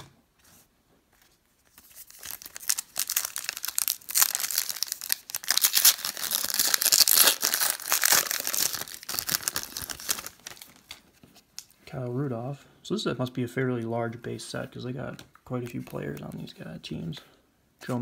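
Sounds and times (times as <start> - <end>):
foil wrapper crinkling: 1.7 - 11.0.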